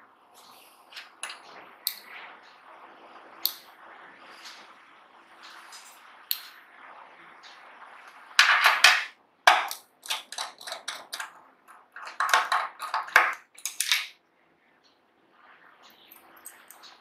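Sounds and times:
small metal parts clinking: 0:08.4 - 0:11.3, 0:12.0 - 0:14.1.

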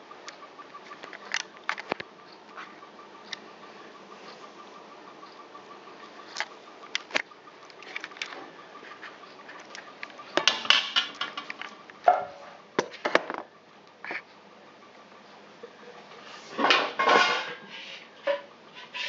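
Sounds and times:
pan and utensils clattering: 0:10.4 - 0:12.5, 0:16.4 - 0:19.0.

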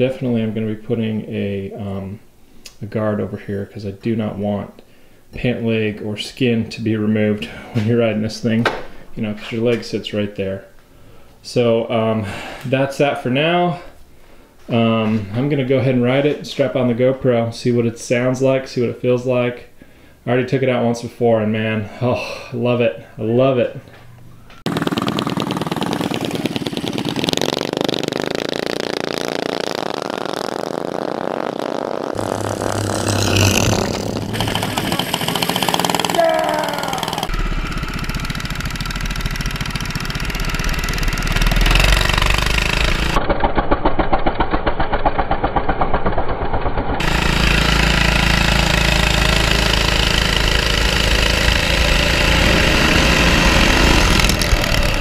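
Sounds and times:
mini bike engine revving: 0:24.7 - 0:55.0.

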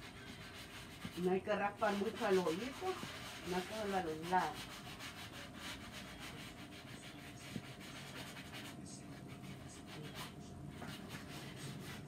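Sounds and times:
sanding sponge scuffing paint: 0:00.0 - 0:12.0.

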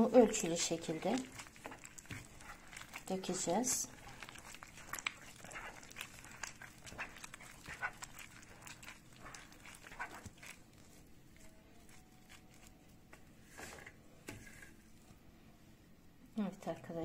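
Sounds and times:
wet mixture squelching: 0:00.0 - 0:13.7.

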